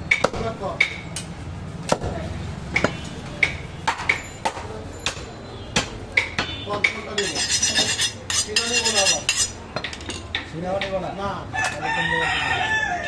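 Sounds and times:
rooster crowing: 11.5 - 13.0.

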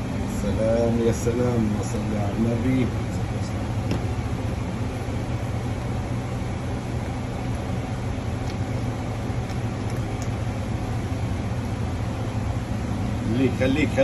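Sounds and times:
kitchen machinery humming: 0.0 - 14.0.

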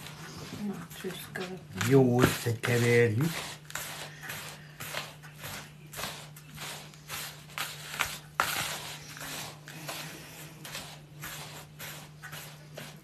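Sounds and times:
dry ingredients mixed in a bowl: 0.0 - 13.0.

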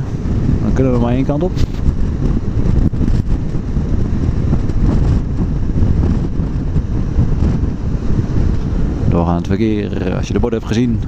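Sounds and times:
motorcycle running: 0.0 - 11.0
wind rumble on microphone: 0.0 - 11.0.

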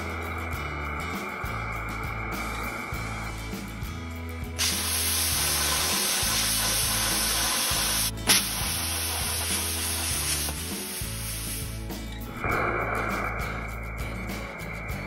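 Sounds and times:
plasma arc sharp crack: 4.6 - 11.6
plasma cutter hissing: 4.6 - 11.9.

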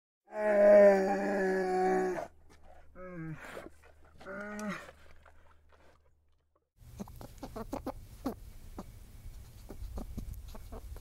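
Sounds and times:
quick clucking calls: 6.9 - 11.0.

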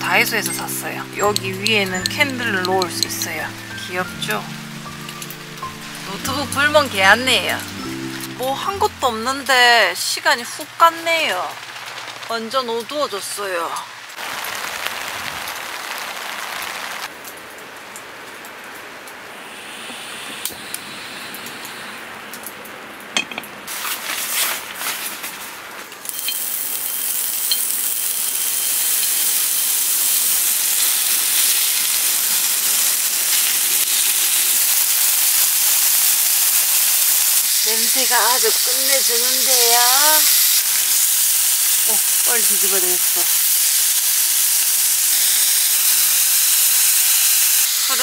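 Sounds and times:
meat sizzling on grill pan: 26.1 - 48.0.

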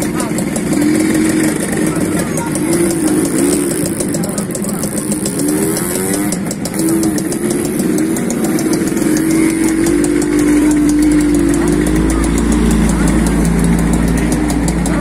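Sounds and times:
deeper engine rumble: 0.0 - 15.0
motorcycle engine revving: 0.0 - 15.0.

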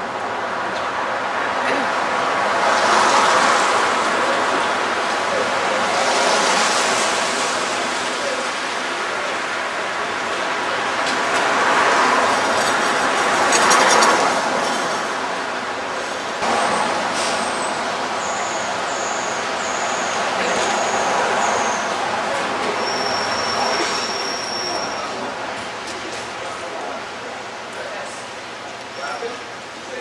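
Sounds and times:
cars and trucks passing: 0.0 - 30.0
air brakes hissing: 16.5 - 21.9.

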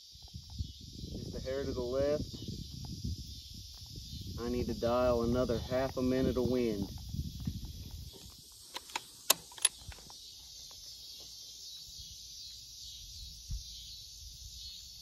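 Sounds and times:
insects chirring: 0.0 - 15.0
sharp clicks: 8.3 - 10.2.

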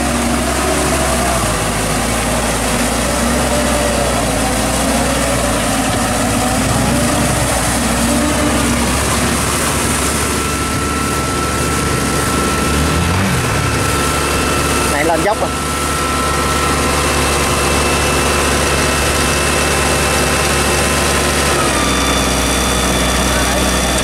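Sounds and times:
rotary tiller working in mud: 0.0 - 24.0
thin steady whine: 0.0 - 24.0
tractor diesel engine running: 0.0 - 24.0.

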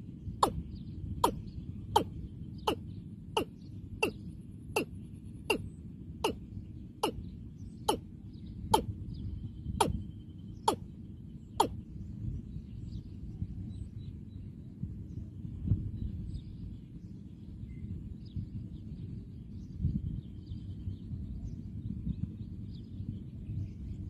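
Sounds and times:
bird calling hollow notes: 0.4 - 0.6, 1.2 - 1.4, 2.0 - 2.8, 7.0 - 7.2.

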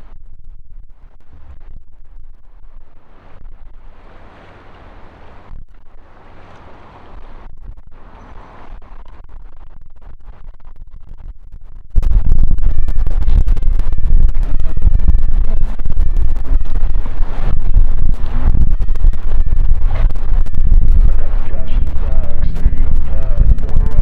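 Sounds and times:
loud dense sound: 0.0 - 24.0
low rumble: 0.0 - 24.0
wind gusting over microphone: 0.0 - 24.0.

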